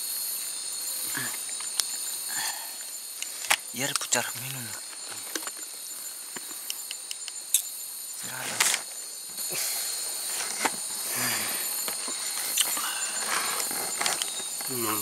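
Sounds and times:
night insects shrilling: 0:00.0 - 0:15.0
sharp clicks: 0:06.4 - 0:07.7
low voice murmurs: 0:14.7 - 0:15.0.

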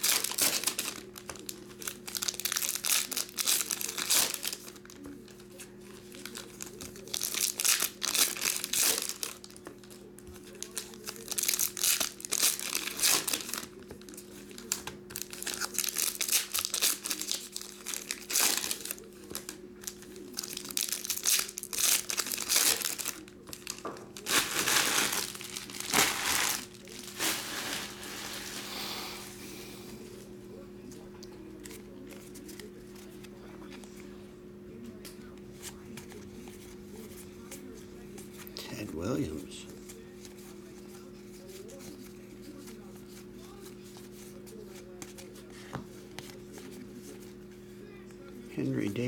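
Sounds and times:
card pack wrappers tearing: 0:00.0 - 0:05.0, 0:06.1 - 0:28.6.

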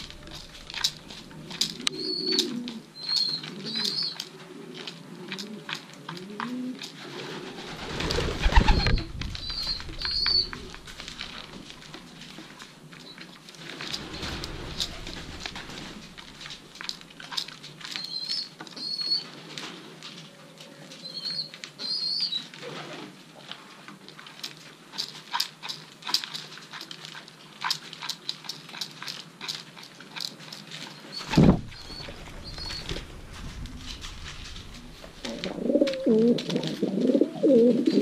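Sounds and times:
wings fluttering: 0:00.0 - 0:05.2, 0:06.9 - 0:17.2, 0:30.9 - 0:37.2
pigeon feet tapping: 0:07.6 - 0:18.9, 0:24.4 - 0:38.0
squeaky chirps: 0:08.8 - 0:10.9, 0:31.1 - 0:35.0
loud low thump: 0:31.3 - 0:35.2.

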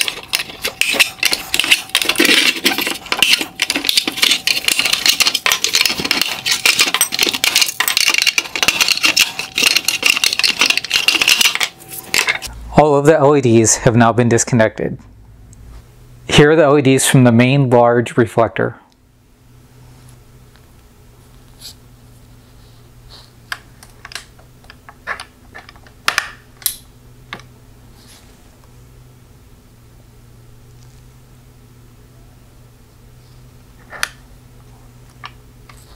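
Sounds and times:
metal and plastic parts clicking: 0:00.0 - 0:12.5
steady low hum: 0:00.0 - 0:35.9.

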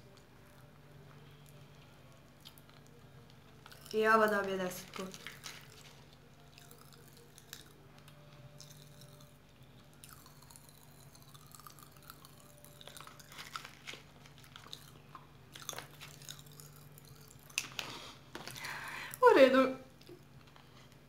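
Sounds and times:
steady low hum: 0:00.0 - 0:21.0
candy crunching in mouth: 0:02.4 - 0:18.8.

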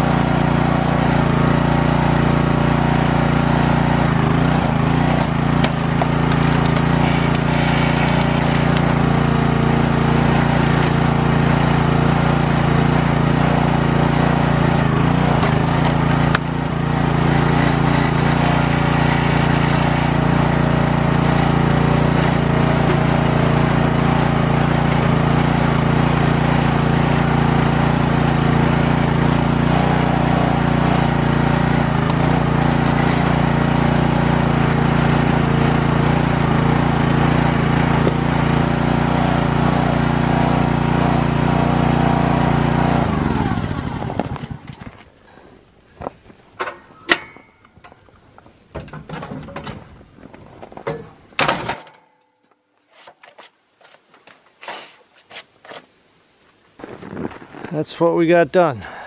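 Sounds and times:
small gasoline engine running: 0:00.0 - 0:45.6.

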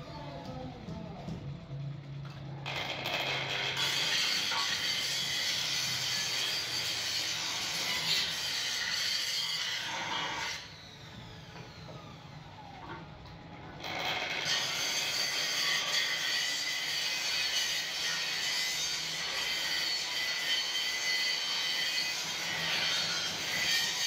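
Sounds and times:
angle grinder grinding steel: 0:02.7 - 0:11.8, 0:13.8 - 0:24.0.

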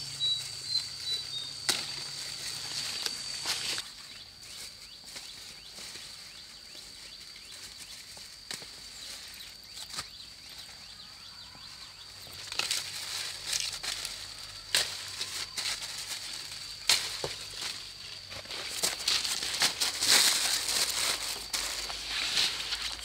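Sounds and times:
leaves and twigs rustling: 0:00.0 - 0:23.0
twigs snapping: 0:01.6 - 0:02.1, 0:16.8 - 0:17.8.

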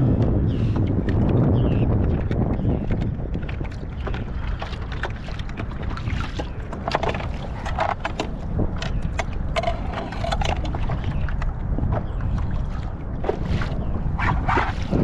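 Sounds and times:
wind rumbling on microphone: 0:00.0 - 0:15.0
fishing tackle clicks and rattles: 0:06.8 - 0:10.8.

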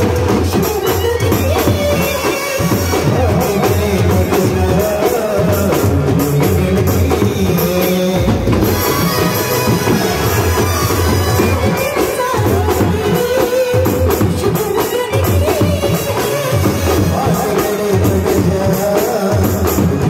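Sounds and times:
trumpets and brass horns melody: 0:08.2 - 0:13.3, 0:16.2 - 0:18.2.

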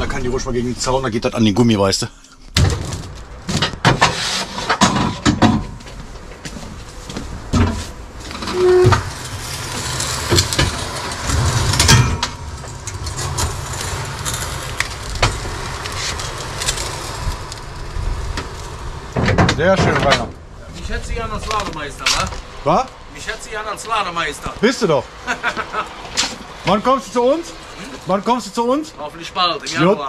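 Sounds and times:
metal clanks and knocks: 0:02.6 - 0:06.4, 0:10.2 - 0:13.6
forklift engine humming: 0:06.0 - 0:30.0.

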